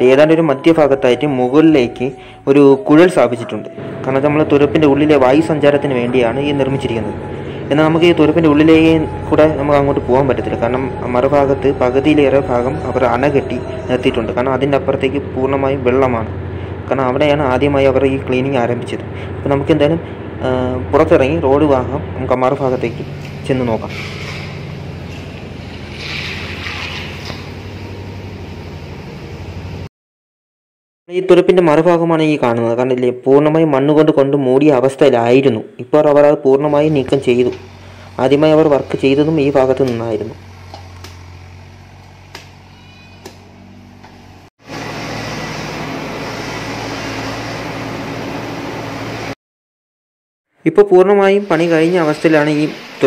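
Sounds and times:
excavator diesel engine running: 3.6s - 29.9s, 36.7s - 49.4s
pump motor humming: 22.6s - 29.6s, 36.8s - 49.4s
rushing hiss: 51.4s - 53.0s.

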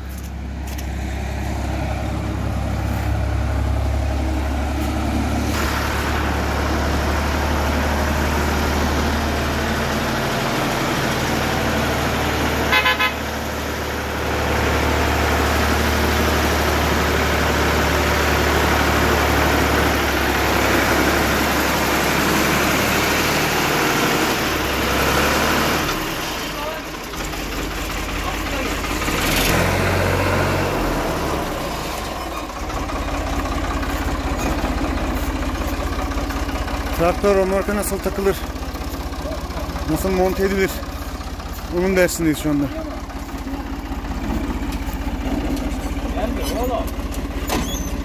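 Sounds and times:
tractor engine droning: 0.0s - 48.0s
horn toot: 12.7s - 13.3s.

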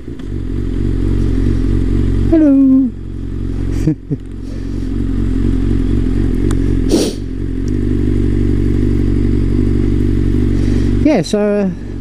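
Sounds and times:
motorcycle engine at low revs: 0.0s - 12.0s
short rush of noise: 6.9s - 7.3s.

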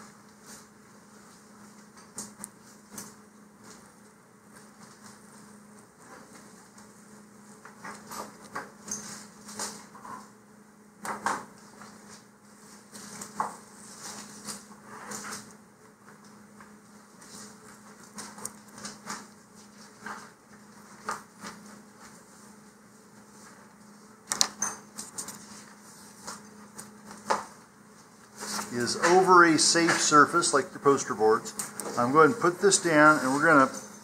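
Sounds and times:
paper rustling: 25.0s - 30.2s.

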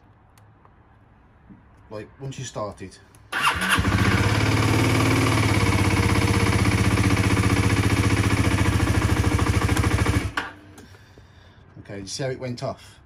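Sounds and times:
motorcycle engine idling: 3.4s - 10.4s.

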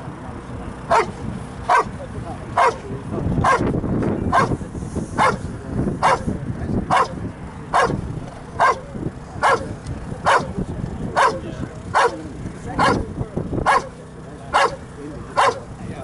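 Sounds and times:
dog barking rhythmically: 0.9s - 1.9s, 2.6s - 2.8s, 3.4s - 3.7s, 4.3s - 4.6s, 5.2s - 5.4s, 6.0s - 6.2s, 6.9s - 8.0s, 8.6s - 9.7s, 10.3s - 10.5s, 11.2s - 11.4s, 12.0s - 12.2s, 12.8s - 13.1s, 13.7s - 13.9s, 14.5s - 14.8s, 15.4s - 15.7s.

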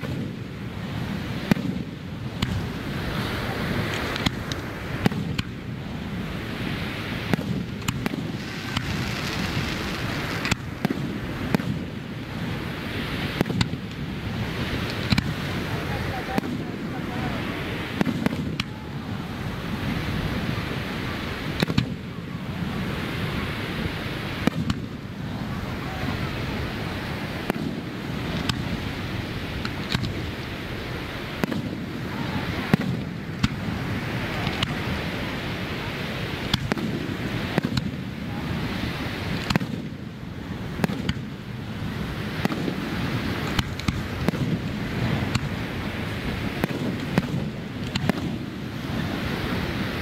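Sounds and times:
rushing background noise: 0.0s - 50.0s
firework shells bursting: 7.1s - 12.5s, 13.2s - 15.7s, 42.2s - 48.7s.

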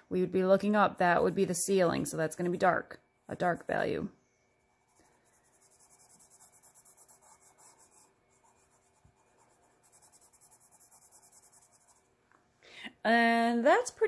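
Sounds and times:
pencil scratching on paper: 4.7s - 12.1s.

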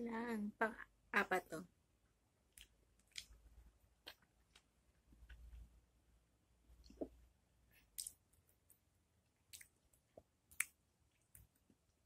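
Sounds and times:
wet mouth clicks and smacks: 2.5s - 3.4s, 7.9s - 8.2s, 9.5s - 9.8s, 10.5s - 11.5s.

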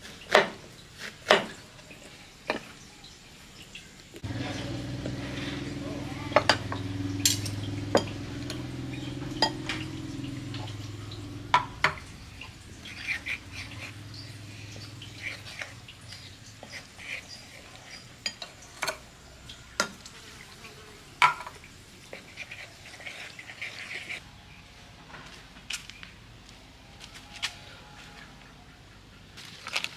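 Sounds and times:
low background hum: 2.9s - 29.8s
metal spoon stirring in bowl: 12.8s - 19.0s, 20.2s - 24.2s.

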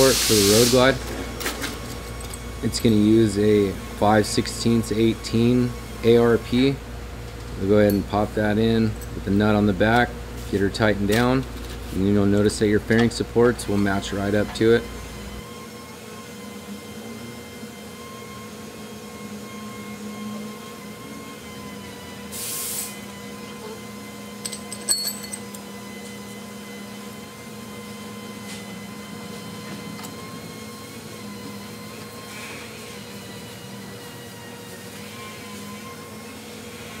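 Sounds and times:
workshop hum: 0.0s - 37.0s
metal tools clinking: 1.4s - 3.1s, 7.8s - 8.3s, 24.4s - 25.6s
brief hiss: 22.4s - 23.0s.

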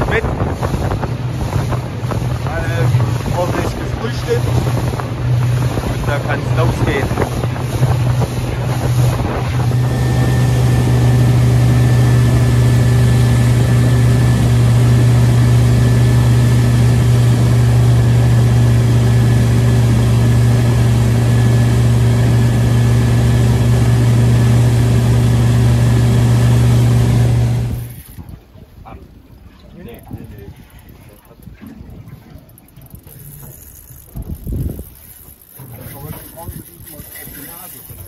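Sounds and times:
wind buffeting microphone: 0.0s - 26.2s, 26.8s - 38.0s
outboard motor droning: 0.0s - 38.0s.

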